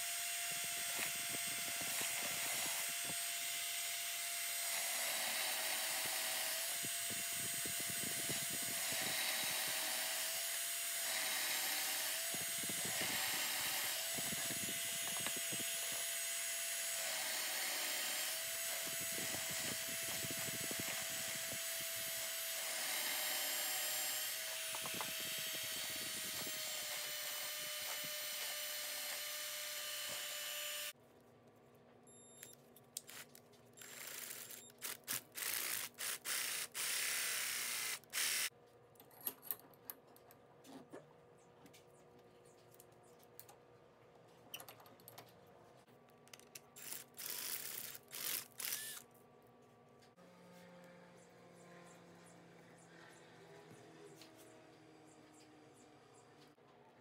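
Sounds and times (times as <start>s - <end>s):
drill press motor running: 0.0s - 30.9s, 33.8s - 38.5s, 46.8s - 49.0s.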